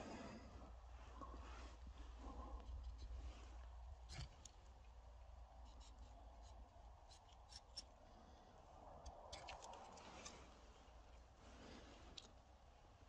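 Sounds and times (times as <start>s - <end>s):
utility knife scraping bark: 5.5s - 8.0s.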